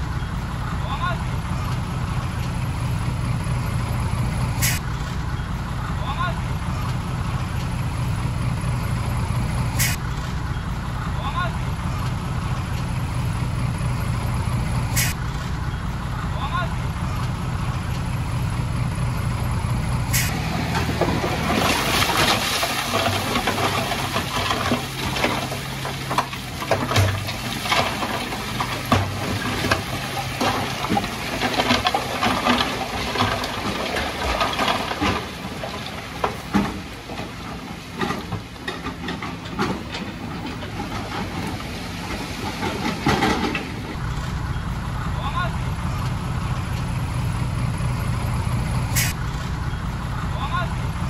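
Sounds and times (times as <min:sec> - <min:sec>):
dump truck engine running: 0:00.0 - 0:51.0
rock and dirt clattering down: 0:20.3 - 0:44.0.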